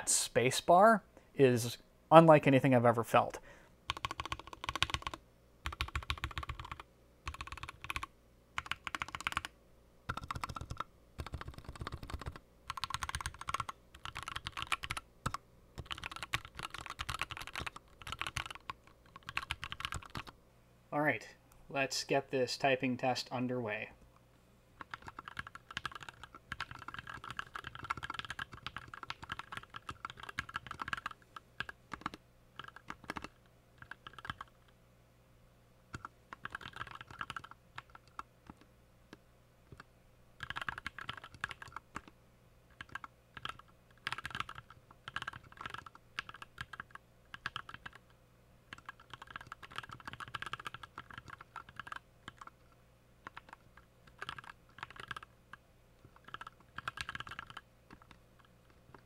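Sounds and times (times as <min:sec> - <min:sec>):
mechanical keyboard typing: 0:03.9 - 0:09.5, 0:10.1 - 0:20.3, 0:24.8 - 0:34.5, 0:35.9 - 0:38.6, 0:40.4 - 0:42.1, 0:42.7 - 0:48.0, 0:48.7 - 0:52.5, 0:53.2 - 0:55.3, 0:56.0 - 0:58.2.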